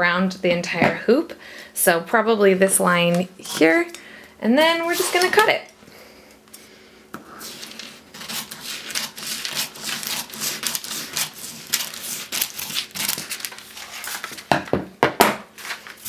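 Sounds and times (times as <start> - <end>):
papery sheet crinkling: 7.4 - 14.5, 15.6 - 16.0.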